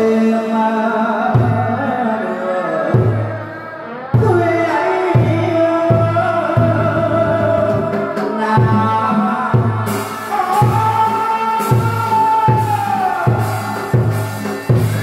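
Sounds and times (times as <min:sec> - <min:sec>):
low drum beating: 0:05.2 - 0:15.0.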